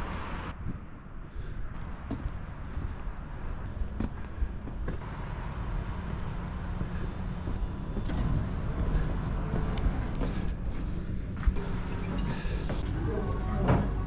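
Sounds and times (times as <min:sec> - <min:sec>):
footsteps: 0:01.7 - 0:05.1.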